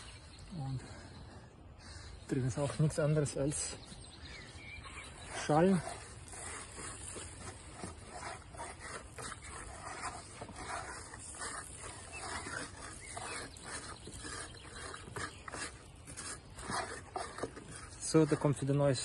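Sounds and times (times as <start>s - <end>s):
hand scraping husks from wooden tray: 4.8s - 19.0s.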